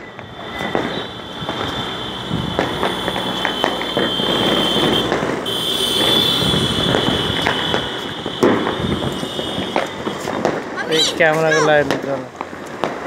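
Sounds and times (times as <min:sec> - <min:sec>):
high-pitched whine: 0:00.0 - 0:05.0
firecrackers popping and cracking: 0:00.0 - 0:13.0.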